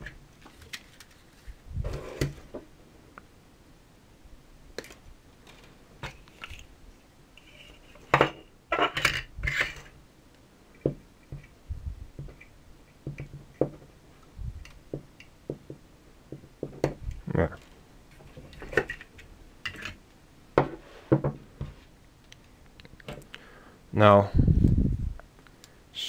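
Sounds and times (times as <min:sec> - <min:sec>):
wire rustling and scraping: 0:00.0 - 0:02.6, 0:04.8 - 0:10.0.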